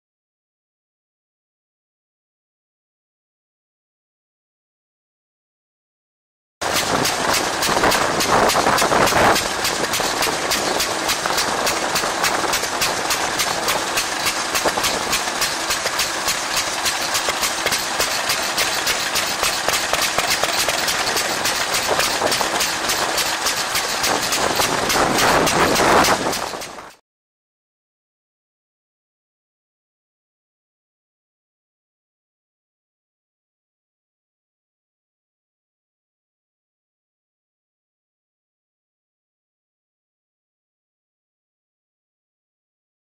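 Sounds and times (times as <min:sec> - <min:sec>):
stationary engine running: 0:06.6 - 0:27.0.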